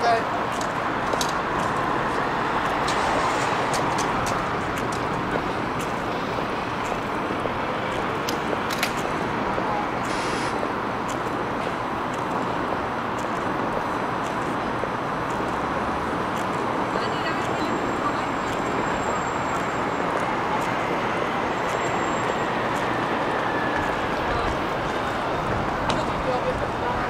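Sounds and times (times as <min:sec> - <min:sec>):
city road traffic: 0:00.0 - 0:27.0
brief hiss: 0:10.1 - 0:10.6.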